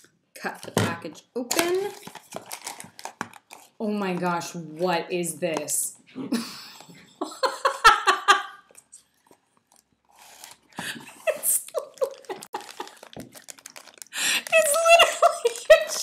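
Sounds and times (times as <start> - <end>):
woman laughing: 7.2 - 8.7, 10.8 - 13.1, 14.6 - 16.0.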